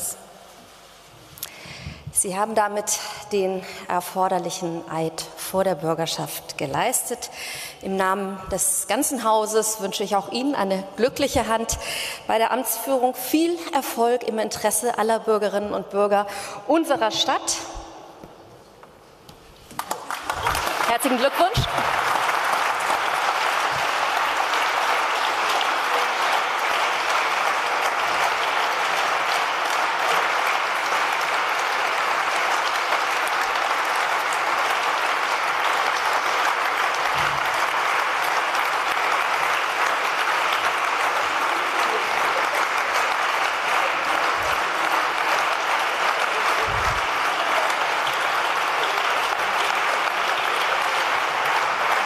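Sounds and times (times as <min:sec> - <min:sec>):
crowd applause: 0:19.8 - 0:52.0.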